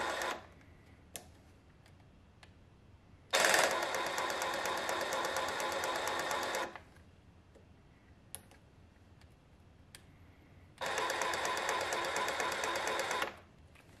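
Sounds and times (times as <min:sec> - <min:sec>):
jigsaw blade buzzing: 0:00.0 - 0:00.4, 0:03.4 - 0:06.8, 0:10.8 - 0:13.4.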